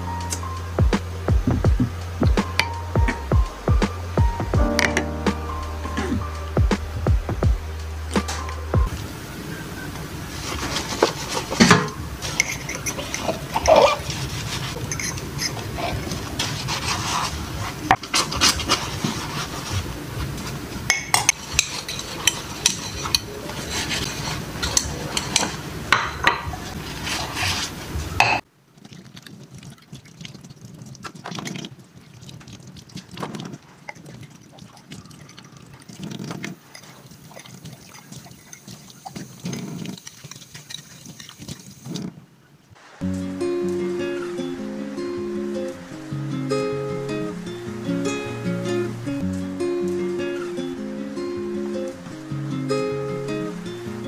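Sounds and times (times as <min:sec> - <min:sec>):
tap water running: 0:01.1 - 0:27.7, 0:28.3 - 0:42.2
sponge scrubbing: 0:10.0 - 0:20.8, 0:21.4 - 0:25.8, 0:26.5 - 0:28.2
dishes clinking: 0:10.6 - 0:16.1, 0:20.9 - 0:26.8.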